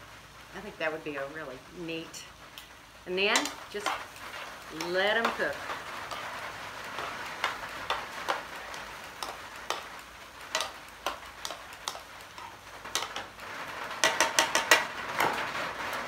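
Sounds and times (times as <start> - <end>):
soft steady hiss: 0.0 - 16.0
metal tongs clicking on a skillet: 3.3 - 4.1, 7.0 - 9.9, 10.5 - 13.3.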